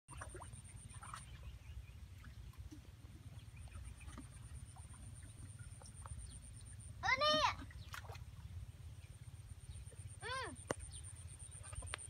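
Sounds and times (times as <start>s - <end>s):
faint chirps and clicks: 9.6s - 12.0s.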